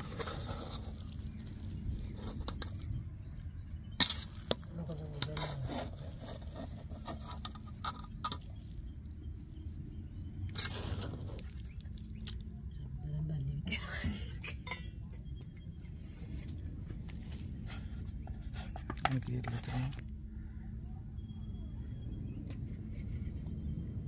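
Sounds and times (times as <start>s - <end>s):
metal spoon scraping a pot: 4.0s - 8.6s.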